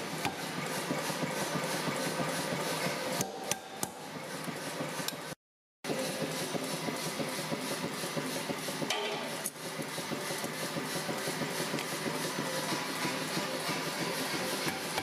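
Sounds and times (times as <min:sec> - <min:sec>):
power hammer running idle: 0:05.9 - 0:15.0.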